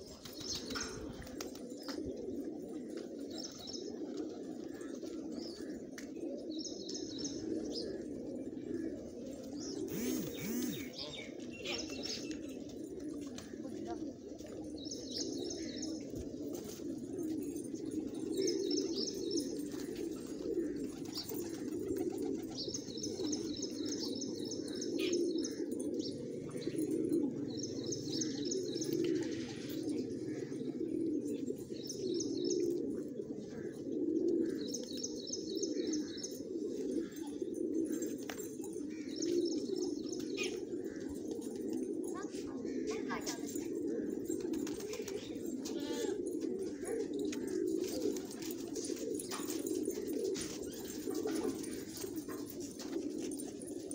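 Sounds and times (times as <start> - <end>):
pigeons cooing: 0.0 - 53.9
high rapid chirping trills: 9.9 - 11.2.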